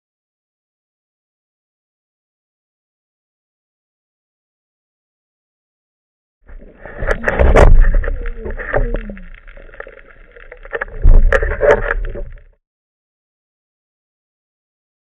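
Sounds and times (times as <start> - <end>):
sharp clicks and knocks: 6.5 - 12.6
water rushing and bubbling underwater: 6.5 - 12.6.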